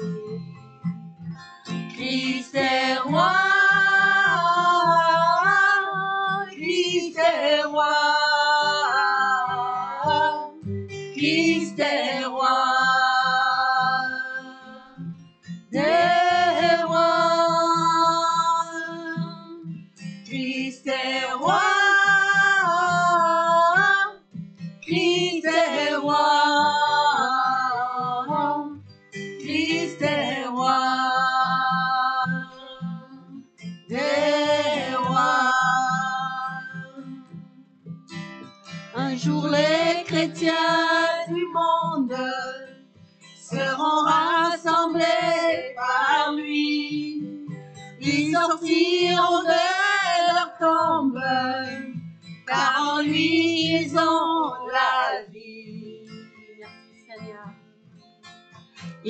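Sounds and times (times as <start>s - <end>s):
woman singing: 0.0s - 0.6s, 1.7s - 37.6s, 38.9s - 57.5s
strummed acoustic guitar: 0.0s - 59.0s.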